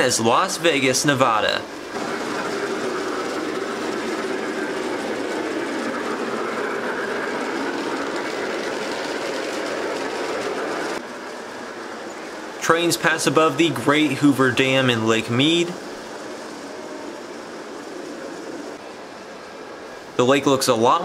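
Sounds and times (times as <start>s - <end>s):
model train wheels clattering on rail: 1.7s - 11.4s.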